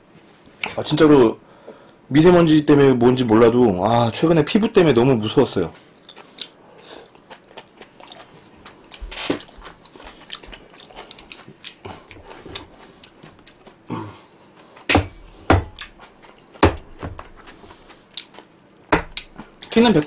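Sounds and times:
chewing: 5.8s - 14.9s, 17.2s - 18.5s.

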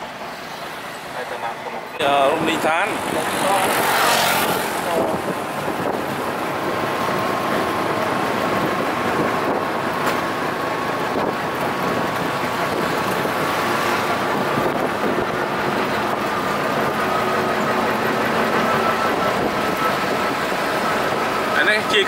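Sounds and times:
road traffic noise: 0.0s - 22.0s
engine whine rising in pitch: 12.0s - 21.9s.

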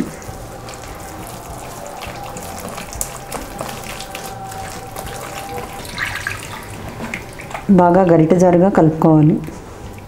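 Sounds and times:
hand squelching wet batter: 0.1s - 7.8s.

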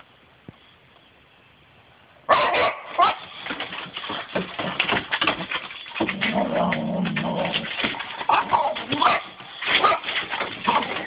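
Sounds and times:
paws scrabbling on wooden boards: 3.0s - 11.0s
dogs growling and whining: 6.0s - 11.0s.

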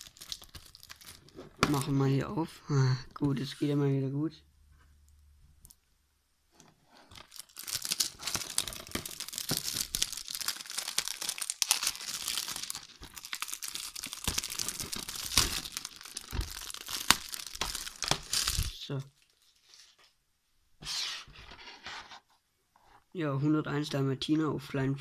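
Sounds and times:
plastic film crinkling: 0.0s - 1.9s, 7.1s - 20.2s.

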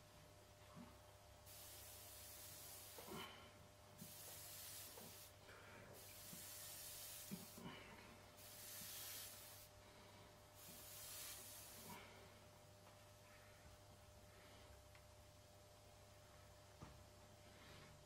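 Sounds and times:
airbrush spraying hiss: 1.4s - 3.3s, 4.0s - 7.7s, 8.4s - 9.7s, 10.6s - 12.0s.

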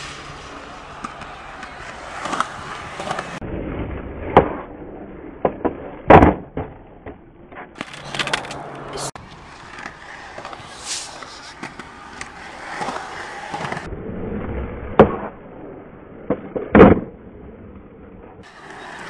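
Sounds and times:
skateboard wheels rolling on concrete: 0.0s - 19.0s
skateboard clacks and slaps: 0.5s - 3.4s, 5.4s - 13.9s.

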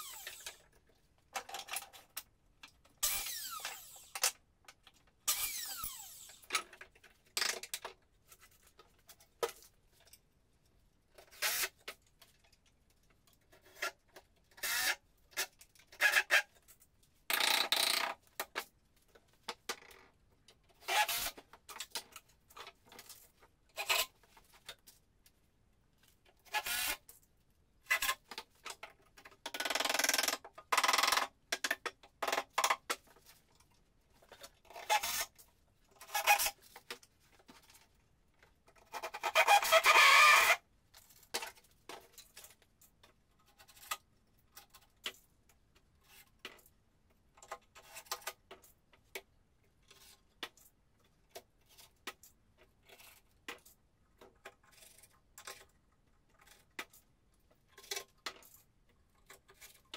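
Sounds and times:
scrapes and knocks of hand work: 27.1s - 39.7s, 40.9s - 59.9s.

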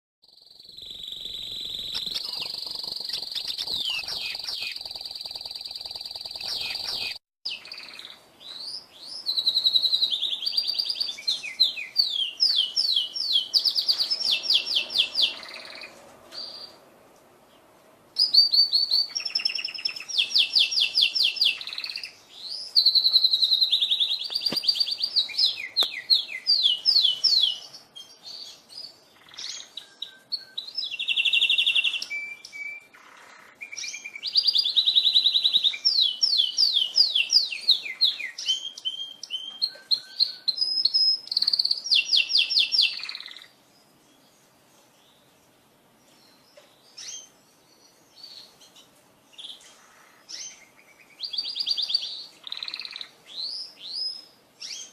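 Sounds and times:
canary trilling: 0.2s - 8.2s, 18.2s - 22.1s.

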